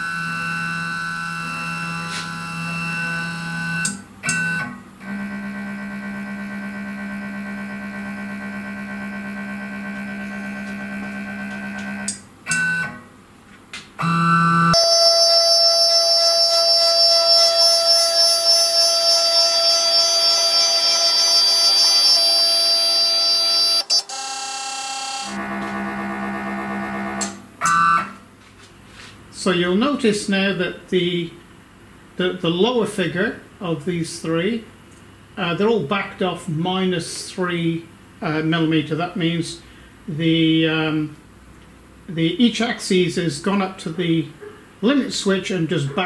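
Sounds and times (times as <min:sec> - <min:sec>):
stepper motors whining: 0:00.0 - 0:12.9, 0:14.0 - 0:28.1
instrumental synth music: 0:14.0 - 0:23.9.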